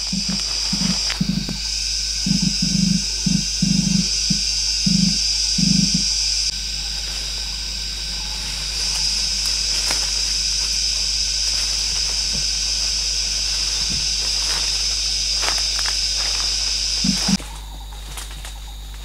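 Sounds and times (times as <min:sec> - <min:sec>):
footsteps on dry leaves: 0:00.0 - 0:02.6, 0:06.5 - 0:19.0
high-pitched insect drone: 0:00.0 - 0:19.0.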